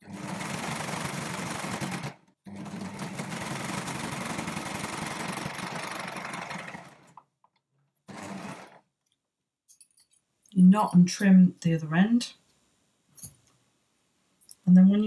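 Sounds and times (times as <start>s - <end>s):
overlocker sewing machine stitching: 0.0s - 7.3s, 8.1s - 8.8s.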